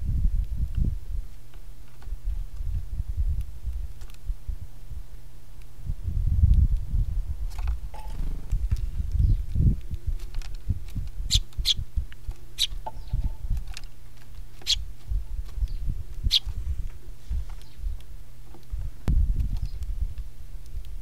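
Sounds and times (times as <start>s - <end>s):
birds pecking on wood: 9.9s - 16.4s.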